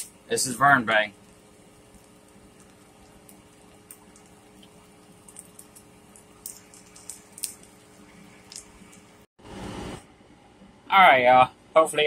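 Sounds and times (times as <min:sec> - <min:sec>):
faint clicks and crackles: 0:01.2 - 0:09.3.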